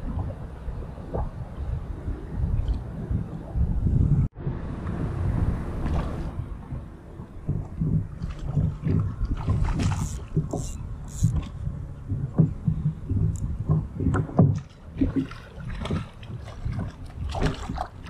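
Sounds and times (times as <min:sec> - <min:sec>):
water slapping against kayak hull: 0:05.8 - 0:18.0
sharp water splashes: 0:08.2 - 0:11.6, 0:14.5 - 0:18.0.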